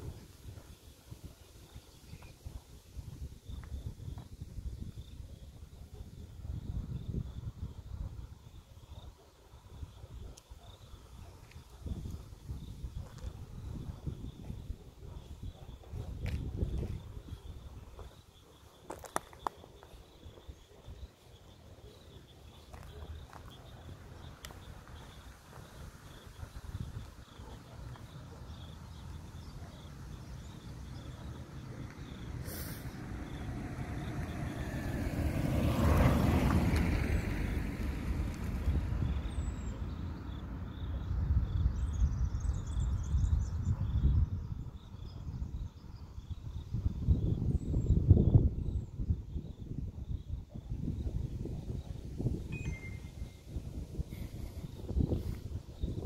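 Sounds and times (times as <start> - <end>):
faint high chirp: 52.4 - 53.6.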